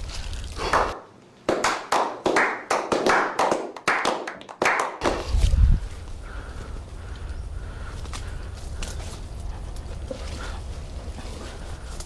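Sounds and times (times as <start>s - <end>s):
people clapping hands: 0.6s - 5.2s.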